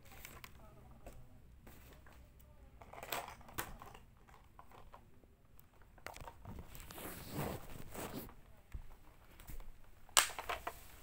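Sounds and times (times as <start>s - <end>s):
plastic objects knocking and crinkling: 2.8s - 7.0s, 7.7s - 11.0s
sharp plastic clicks: 10.1s - 10.7s.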